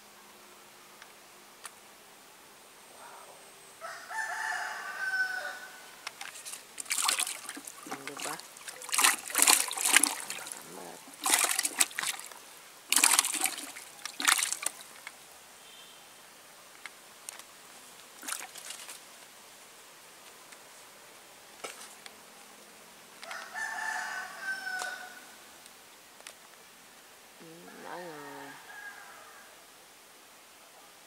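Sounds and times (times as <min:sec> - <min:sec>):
rooster crowing: 0:03.0 - 0:06.0, 0:23.2 - 0:25.4, 0:27.6 - 0:29.7
fish splashing in bucket: 0:06.1 - 0:15.0, 0:18.2 - 0:19.1.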